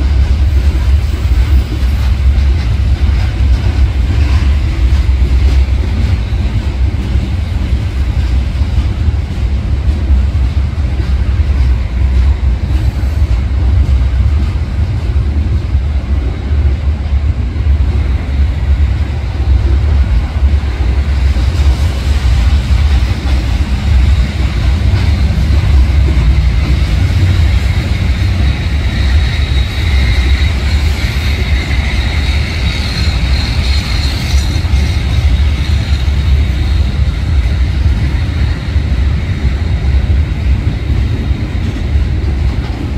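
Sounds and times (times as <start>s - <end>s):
train wheels rumbling on rail: 0.0s - 42.9s
high wheel squeal: 26.9s - 37.4s.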